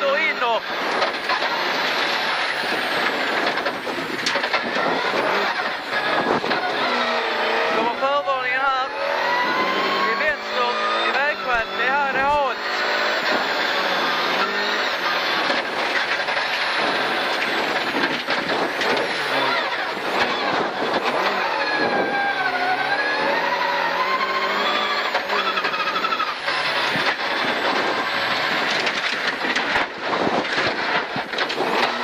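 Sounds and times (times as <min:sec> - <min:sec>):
knocks and rattles from gravel road: 0:00.0 - 0:09.6, 0:10.2 - 0:32.0
rally car engine at high revs: 0:00.0 - 0:32.0.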